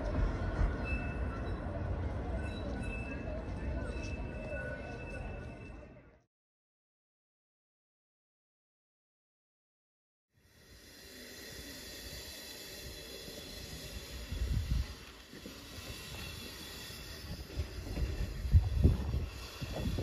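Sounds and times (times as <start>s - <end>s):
train rumbling on track: 0.0s - 6.1s, 10.6s - 20.0s
steam locomotive hissing: 10.4s - 20.0s.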